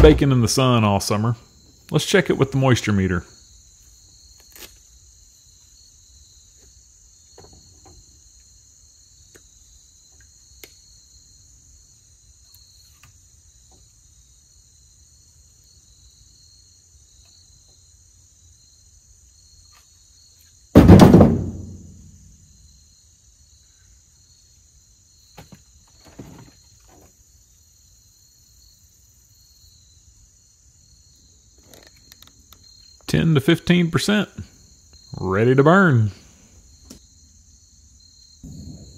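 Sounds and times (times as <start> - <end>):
loud thunk: 0.0 - 0.6, 20.8 - 22.1, 38.4 - 38.9
insects trilling: 0.0 - 20.8, 21.6 - 38.9.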